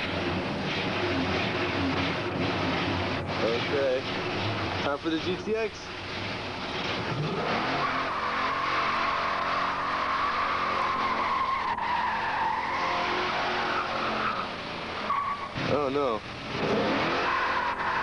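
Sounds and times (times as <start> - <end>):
car engine revving high: 0.0 - 5.1, 6.0 - 18.0
tire squeal: 6.8 - 15.8, 16.6 - 18.0.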